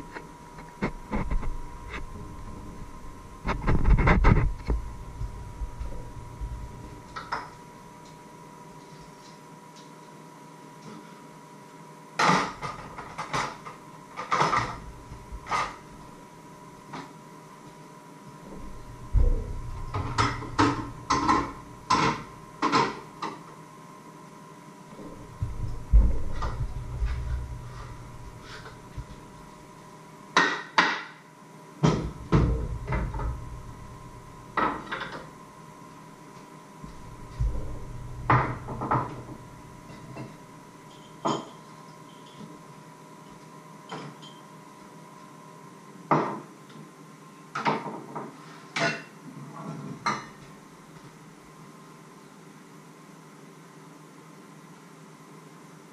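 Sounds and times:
faint steady hum: 0.0s - 55.9s
dull low thumps: 0.9s - 6.9s, 18.5s - 21.9s, 25.1s - 29.4s, 32.1s - 34.6s, 36.8s - 39.8s
kitchenware knocks and clunks: 18.5s - 23.1s, 25.0s - 29.1s, 31.8s - 33.6s, 34.5s - 35.3s, 36.8s - 41.6s.

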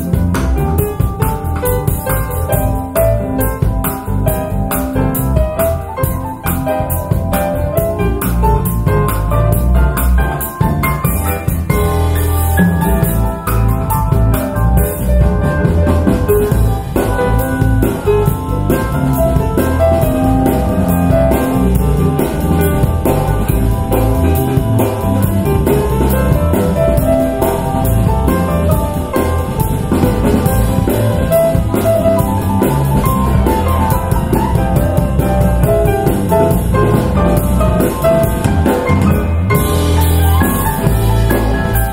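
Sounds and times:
jazz piano with drums: 0.0s - 41.9s.

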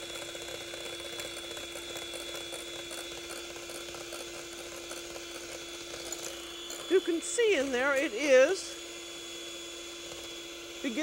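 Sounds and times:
electric hand mixer running: 0.0s - 11.0s.

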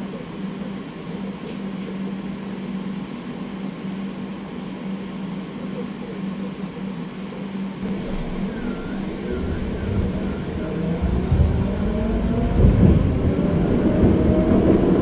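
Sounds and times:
tram motor whine: 7.0s - 15.0s
wheels rumbling on rails: 7.8s - 15.0s.

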